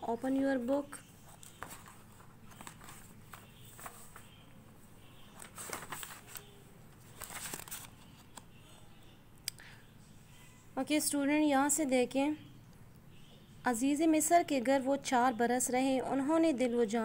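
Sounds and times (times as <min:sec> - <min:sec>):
paper pages turning: 0:01.2 - 0:04.4, 0:05.3 - 0:08.5.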